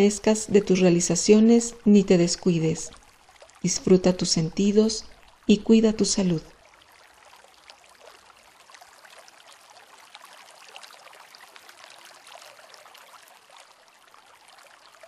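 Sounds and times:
running water with drips: 0.0 - 15.0.

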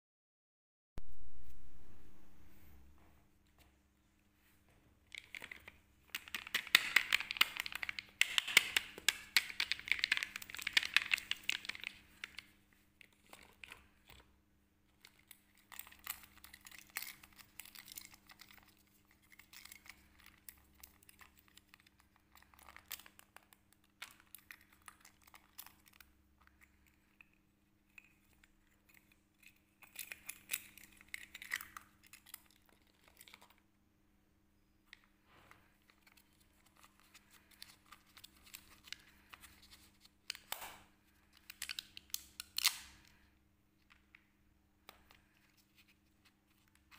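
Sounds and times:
plastic packaging crinkling: 5.1 - 14.3, 14.9 - 33.6, 35.6 - 43.2.

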